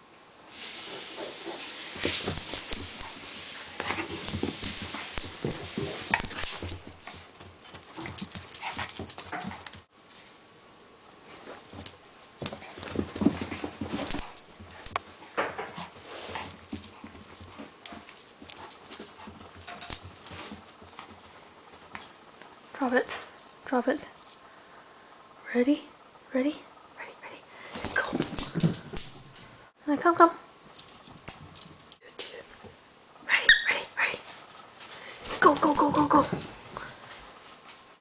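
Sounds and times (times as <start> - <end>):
puppy scuffling on carpet: 0.8 - 10.3, 11.2 - 23.1.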